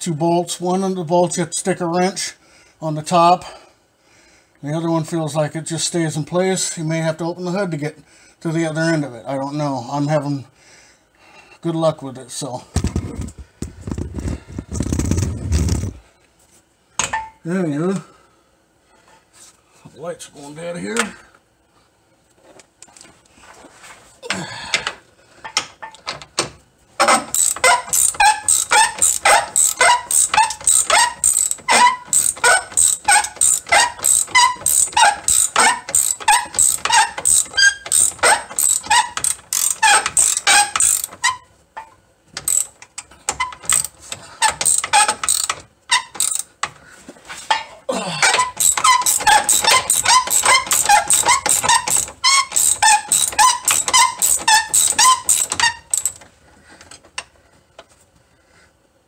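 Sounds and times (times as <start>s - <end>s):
ratchet wrench clicking: 27.1s - 41.4s, 42.4s - 46.5s, 48.4s - 56.2s.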